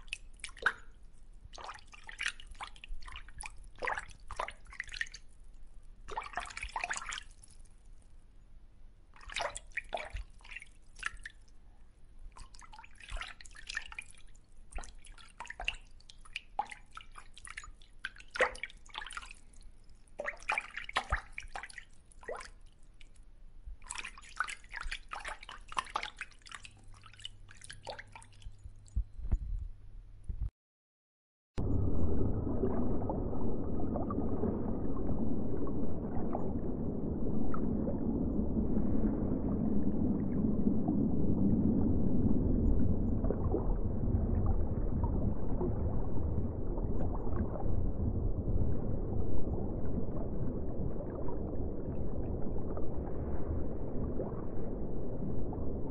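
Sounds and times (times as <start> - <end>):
water dripping: 0.0 - 8.1, 9.1 - 11.6, 12.3 - 29.6, 31.6 - 41.2.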